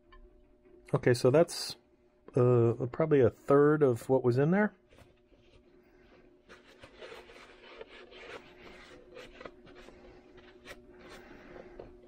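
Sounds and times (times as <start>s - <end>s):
paper towel rubbing plastic bottle: 4.9s - 12.0s.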